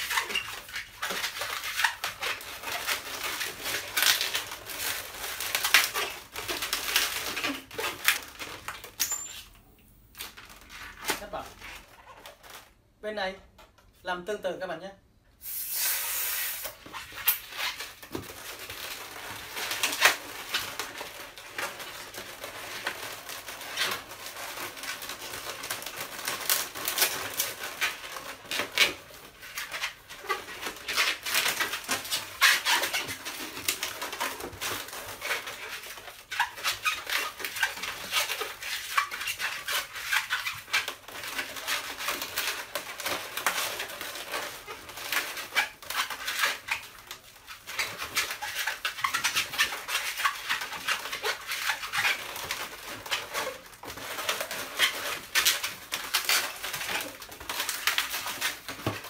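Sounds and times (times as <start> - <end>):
balloons squeaking and rubbing: 0.0 - 13.4, 15.4 - 59.0.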